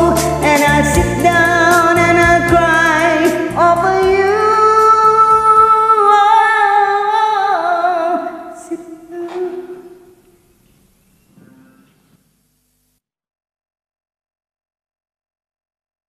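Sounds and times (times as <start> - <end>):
backing track music: 0.0 - 6.4
person singing karaoke: 0.0 - 10.3.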